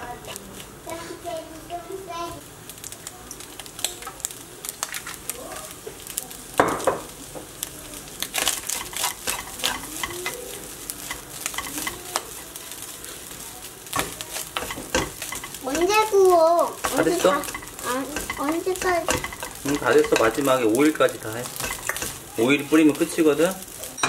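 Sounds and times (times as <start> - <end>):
fried rice sizzling in a wok: 0.0 - 24.0
wooden spatula scraping a pan: 8.3 - 24.0
spatula clicking against pan: 8.4 - 12.2, 13.9 - 16.2, 16.8 - 20.5, 21.5 - 22.2.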